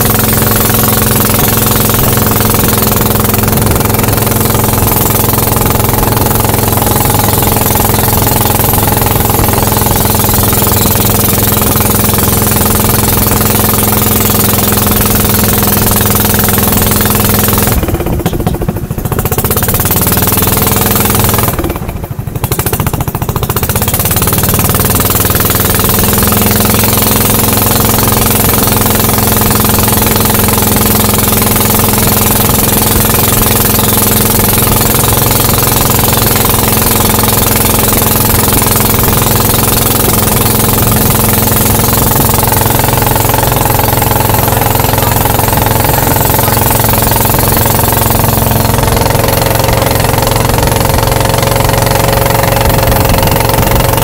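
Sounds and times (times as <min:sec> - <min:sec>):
motorboat engine running: 0:00.0 - 0:54.0.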